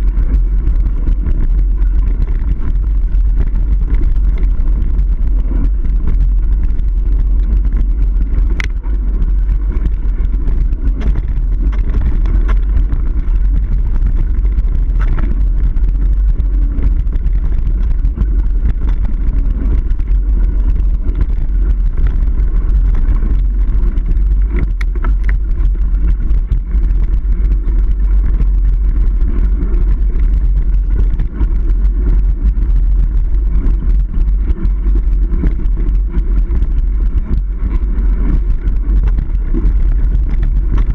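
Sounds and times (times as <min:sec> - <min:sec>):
bike clicks and rattles: 0:00.0 - 0:40.9
wind buffeting and tyre noise: 0:00.0 - 0:40.9.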